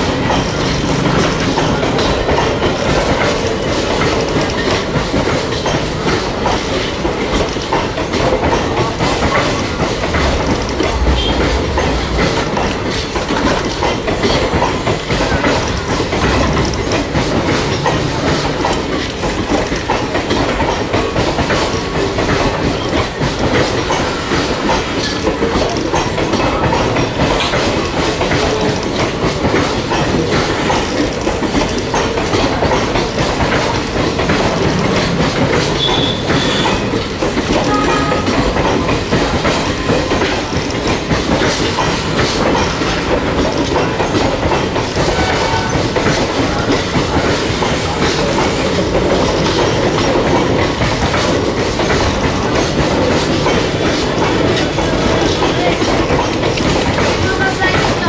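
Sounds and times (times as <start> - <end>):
train wheels clattering: 0.0 - 58.0
high wheel squeals: 35.7 - 36.9.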